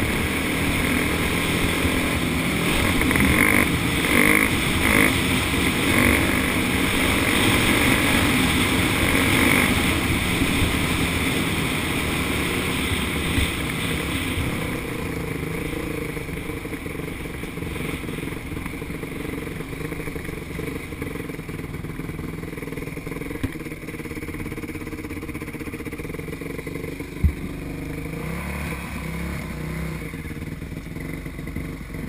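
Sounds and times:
motocross bike engine running: 0.0 - 32.0.

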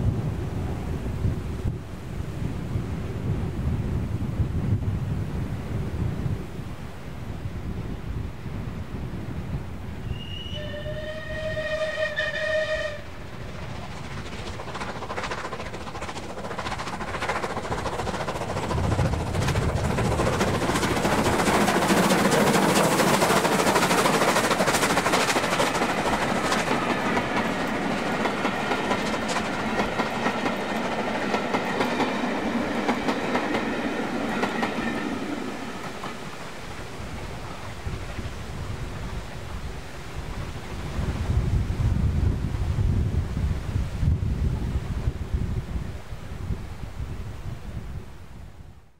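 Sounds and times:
locomotive exhaust beats and steam: 8.6 - 46.6
steam locomotive whistle: 10.0 - 13.3.

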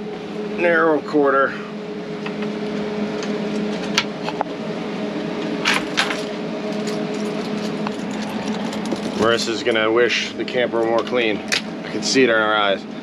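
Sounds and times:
mechanical hum: 0.0 - 13.0
rattling rustling noises: 5.6 - 9.9.

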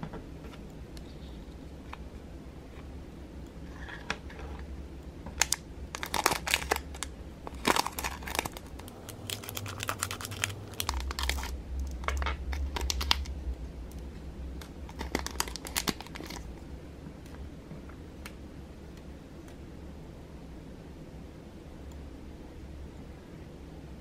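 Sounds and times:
steady low hum: 0.0 - 24.0
plastic bag crinkling: 5.4 - 13.3, 14.6 - 16.6.

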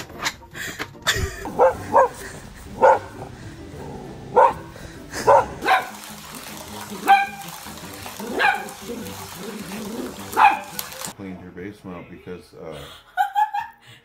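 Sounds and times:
dog barking: 1.5 - 2.2, 2.8 - 3.3, 4.3 - 6.0, 7.0 - 7.5, 8.2 - 11.1.

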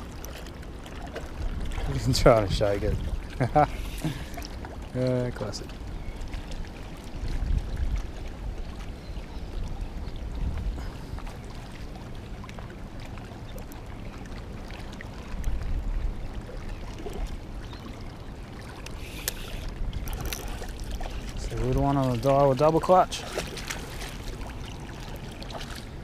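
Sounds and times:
wind buffeting microphone: 1.2 - 4.5, 5.8 - 11.9, 18.9 - 26.0.

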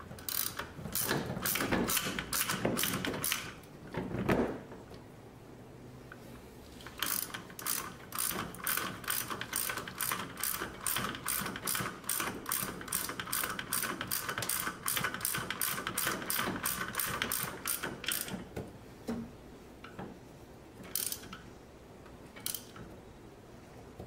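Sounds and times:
ratchet wrench clicking: 0.2 - 3.5, 7.0 - 18.3, 20.9 - 21.4, 22.4 - 22.8.

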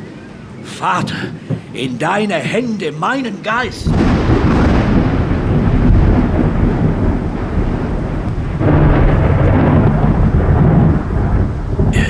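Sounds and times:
deep rolling thunder-like rumble: 3.8 - 12.0.

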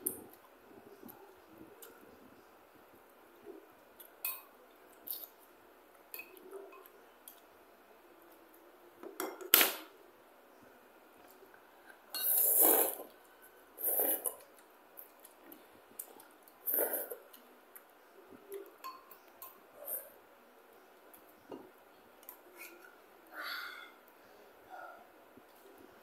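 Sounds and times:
noodle slurping: 12.2 - 13.1, 13.8 - 14.4.

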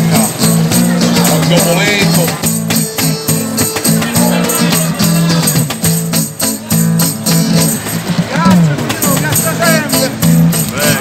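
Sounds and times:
music with steady beat and bass: 0.0 - 11.0.

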